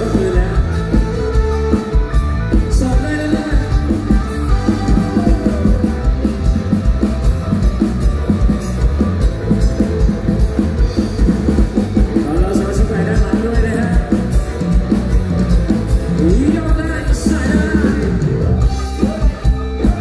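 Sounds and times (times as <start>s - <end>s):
live band music: 0.0s - 20.0s
person singing: 2.6s - 6.2s, 16.1s - 20.0s.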